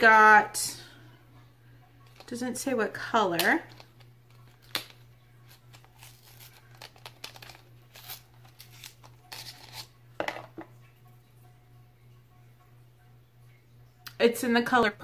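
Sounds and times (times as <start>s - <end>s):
packaging rustling and clicking: 3.7s - 9.9s.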